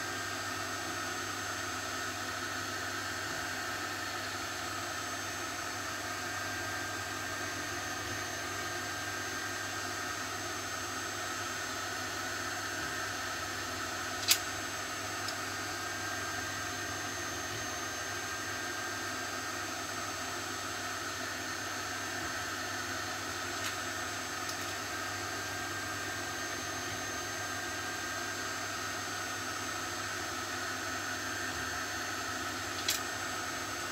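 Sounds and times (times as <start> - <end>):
steady whirring: 5.2 - 29.4, 30.0 - 33.9
sharp click: 14.2 - 14.5.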